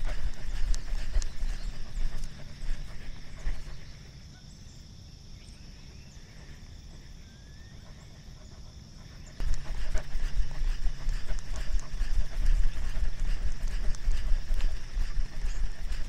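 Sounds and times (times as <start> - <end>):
high-pitched hum: 9.2 - 16.0.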